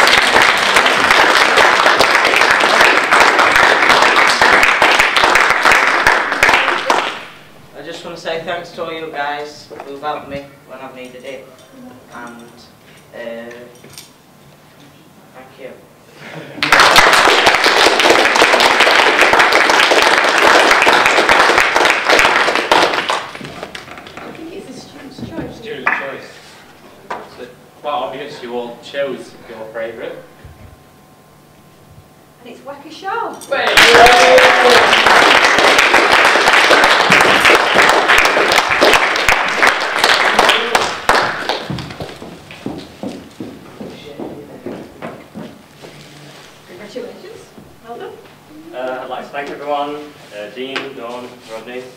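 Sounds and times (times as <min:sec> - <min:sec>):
audience applauding: 0:00.0 - 0:07.5, 0:16.6 - 0:24.4, 0:33.6 - 0:42.8
audience cheering: 0:33.6 - 0:41.7.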